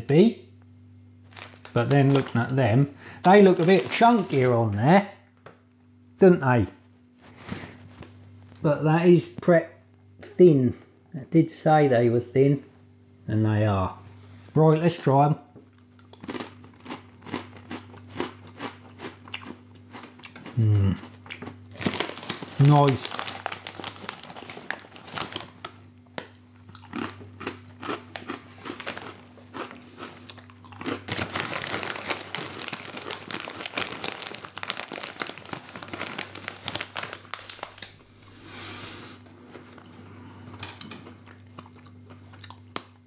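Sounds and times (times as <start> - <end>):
plastic bag crinkling: 1.2 - 4.9, 21.7 - 38.4
crunching and chewing pretzels: 1.3 - 4.8, 15.7 - 43.0.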